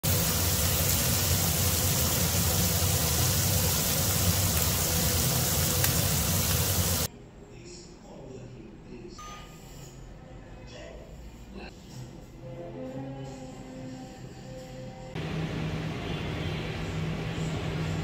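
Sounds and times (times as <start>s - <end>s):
meat sizzling in a frying pan: 0.0s - 7.1s.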